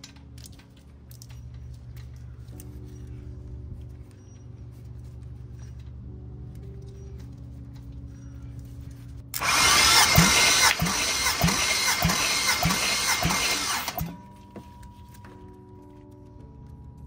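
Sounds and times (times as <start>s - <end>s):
engine cranking by starter: 9.4s - 14.2s.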